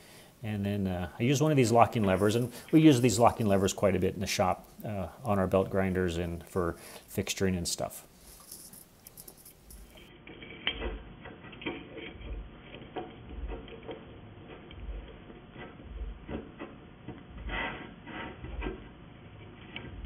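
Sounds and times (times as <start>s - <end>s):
metallic clicks and clinks: 8.4s - 10.1s
dull low knocks: 14.8s - 15.2s.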